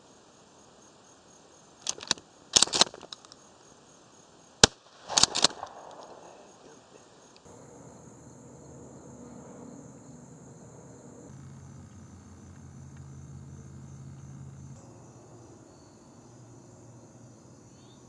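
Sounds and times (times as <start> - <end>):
clicks of gun handling: 1.8 - 3.4, 5.1 - 6.3
shotgun firing: 4.6 - 6.8.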